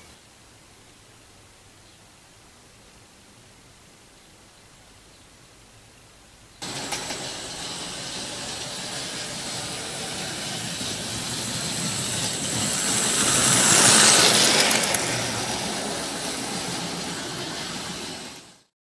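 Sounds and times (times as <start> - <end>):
model train whirring on track: 6.6 - 18.7.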